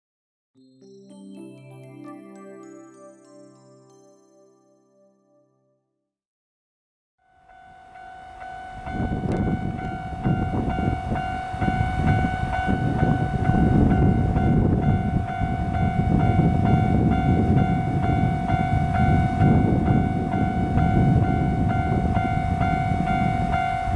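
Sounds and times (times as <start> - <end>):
level crossing warning bell: 7.2 - 23.9.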